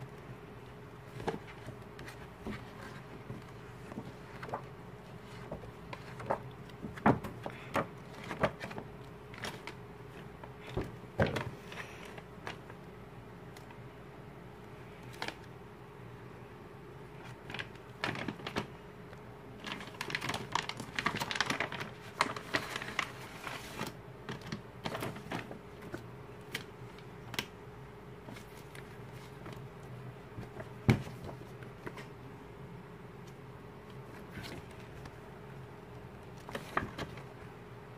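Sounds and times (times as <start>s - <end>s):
glossy pages flipping: 1.1s - 12.7s.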